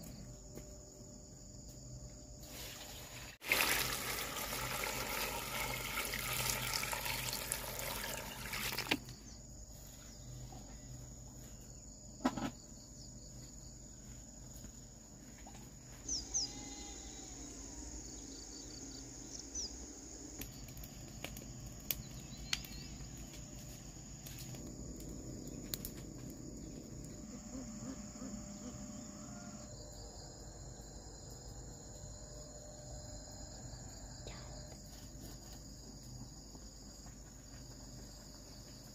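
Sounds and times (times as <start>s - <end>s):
insects chirring: 0.0s - 38.9s.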